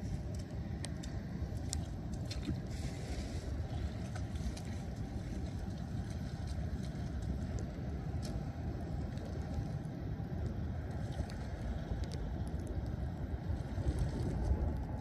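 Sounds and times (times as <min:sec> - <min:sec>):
steady low rumble: 0:00.0 - 0:15.0
footsteps splashing through water: 0:00.3 - 0:08.5.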